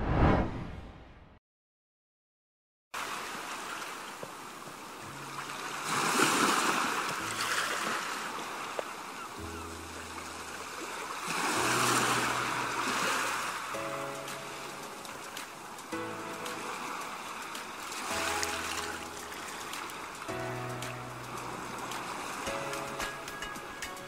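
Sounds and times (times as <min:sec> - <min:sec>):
sea waves washing onto shore: 0:03.0 - 0:24.0
soft music with low notes: 0:05.0 - 0:06.1, 0:09.4 - 0:24.0.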